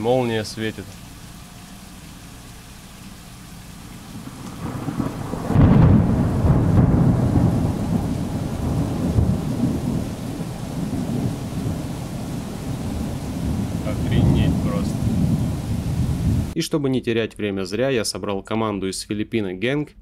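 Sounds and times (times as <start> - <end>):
heavy rain: 0.0 - 16.6
thunder rumbling: 3.9 - 16.6.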